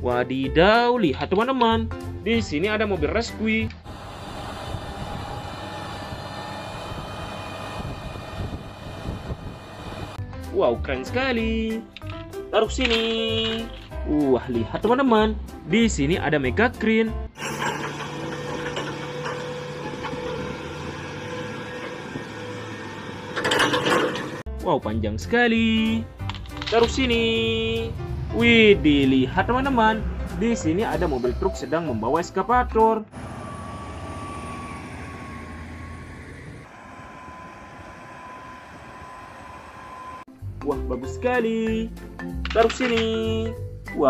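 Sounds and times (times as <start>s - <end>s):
crane diesel engine droning: 3.8s - 10.2s, 17.4s - 24.5s, 33.1s - 40.3s
loud sound with shifting pitch: 3.8s - 10.2s, 17.4s - 24.4s, 33.1s - 40.3s
thin high whine: 33.1s - 40.3s.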